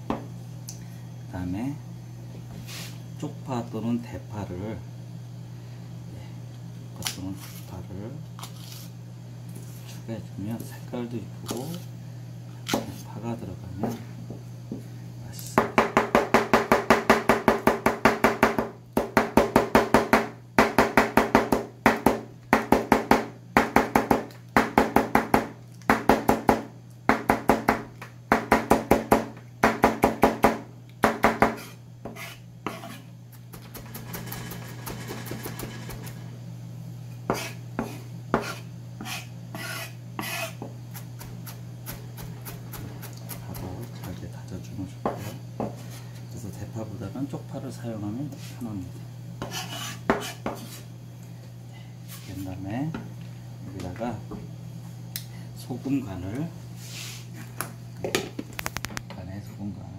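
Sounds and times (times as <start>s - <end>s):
knife chopping on plastic board: 15.6s - 35.7s, 37.3s - 44.1s.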